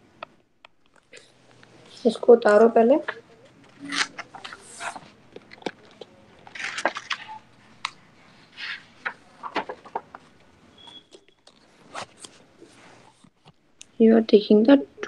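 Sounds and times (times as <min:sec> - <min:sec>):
soft rustles: 0:11.5 - 0:13.5.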